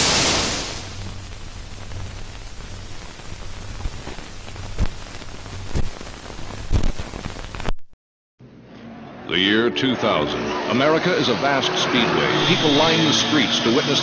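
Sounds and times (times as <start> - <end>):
film soundtrack hiss: 0.0 - 7.7
low hum: 0.0 - 7.7
film crackle and pops: 0.0 - 8.0
trailer music: 8.4 - 14.0.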